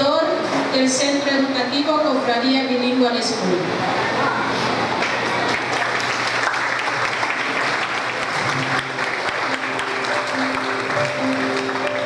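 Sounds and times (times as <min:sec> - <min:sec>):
audience applauding: 0:05.0 - 0:12.0
held musical notes: 0:07.8 - 0:12.0.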